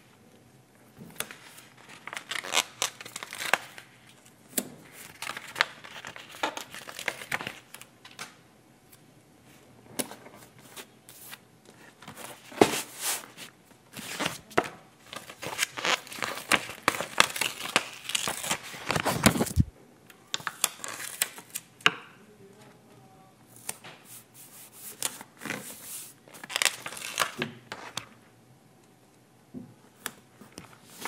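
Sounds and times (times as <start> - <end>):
paper crinkling and rustling: 1.2 - 8.3, 10.0 - 19.7, 23.6 - 28.2.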